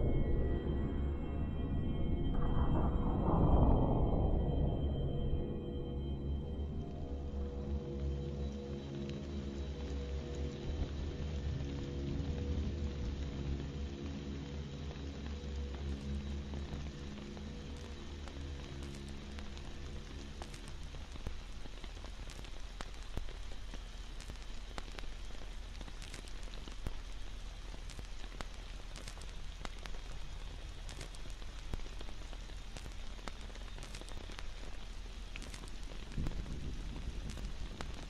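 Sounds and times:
low hum: 0:00.0 - 0:21.6
rain hissing: 0:02.4 - 0:38.0
sharp crackling ticks: 0:18.6 - 0:38.0.

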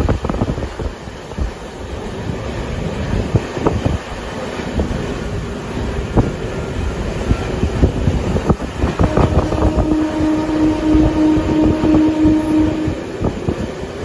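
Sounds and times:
train rumbling on rails: 0:00.0 - 0:14.0
wind at open window: 0:00.0 - 0:14.0
train horn: 0:08.8 - 0:13.7.

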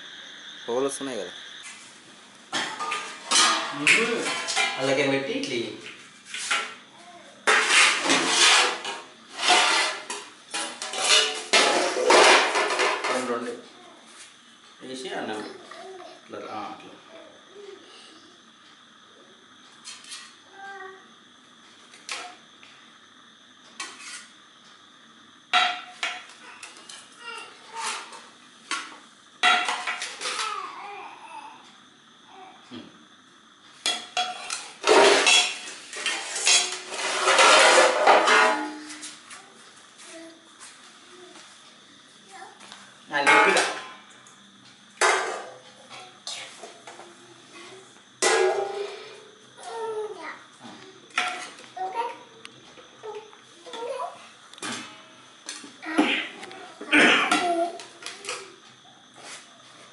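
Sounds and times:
steel dishes clattering: 0:02.6 - 0:04.8, 0:07.5 - 0:13.1, 0:33.9 - 0:38.8.

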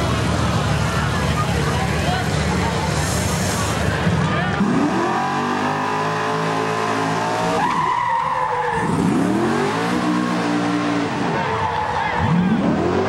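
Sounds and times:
racing engine revving: 0:00.0 - 0:13.0
tires squealing: 0:02.6 - 0:13.0.

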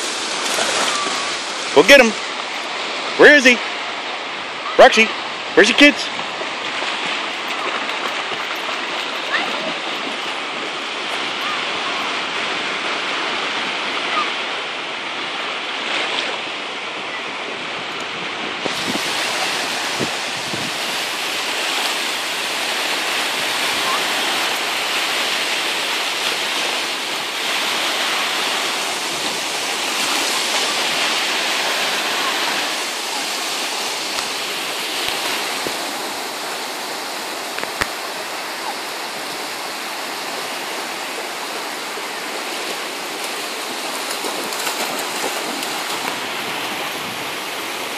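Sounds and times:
lake waves washing on shore: 0:00.0 - 0:47.9.

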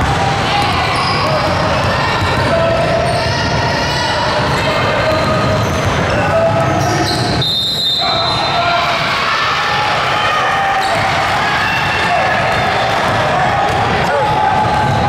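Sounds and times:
basketball bouncing on court: 0:00.4 - 0:03.6, 0:04.3 - 0:07.4, 0:10.8 - 0:15.0
short high shoe squeaks: 0:06.8 - 0:08.4.

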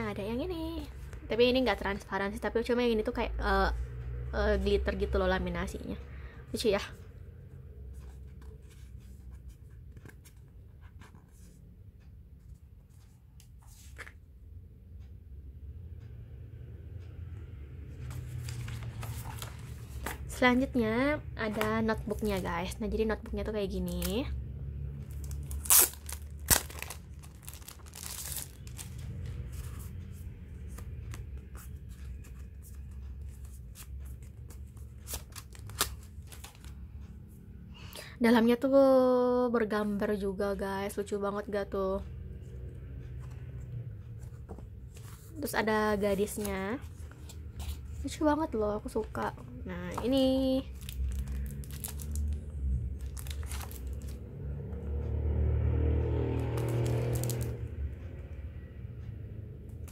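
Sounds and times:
notebook being handled: 0:08.0 - 0:11.6, 0:12.9 - 0:14.2, 0:18.0 - 0:20.4, 0:21.4 - 0:22.5, 0:25.2 - 0:36.8, 0:44.2 - 0:48.0
plastic sleeve crinkling: 0:25.1 - 0:29.2, 0:50.8 - 0:52.4, 0:53.0 - 0:54.1.

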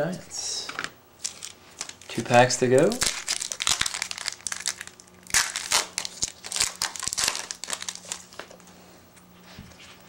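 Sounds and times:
foil wrapper crinkling: 0:01.2 - 0:08.7.

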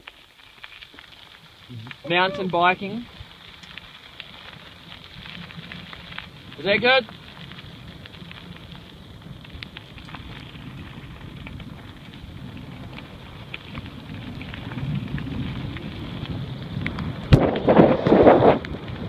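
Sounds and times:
bike tyres rumbling on gravel: 0:00.0 - 0:19.0
bike clicks and rattles: 0:02.5 - 0:19.0
wind on microphone: 0:13.8 - 0:19.0.

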